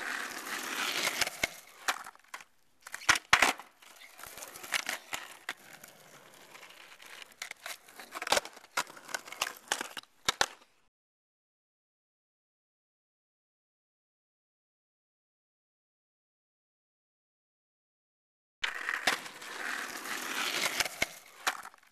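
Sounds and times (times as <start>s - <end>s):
skateboard wheels rolling on asphalt: 0.0s - 10.9s, 18.6s - 21.9s
skateboard clacks and knocks: 0.1s - 10.7s, 18.6s - 21.9s.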